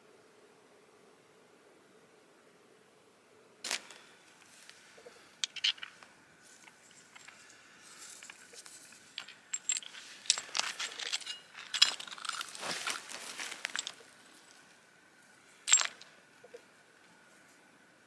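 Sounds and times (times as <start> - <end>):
stones clicking and scraping: 5.4 - 14.1.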